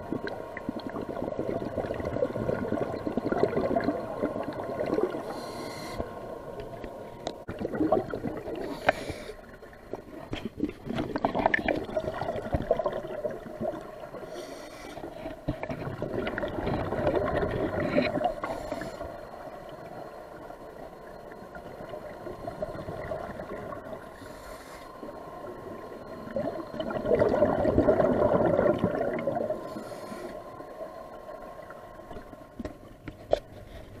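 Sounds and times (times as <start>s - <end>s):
bubbles gurgling underwater: 0.0s - 5.4s, 6.5s - 8.8s, 9.4s - 14.3s, 15.4s - 18.6s, 19.6s - 24.1s, 25.2s - 29.8s
faint steady tone: 0.0s - 11.0s, 11.6s - 34.0s.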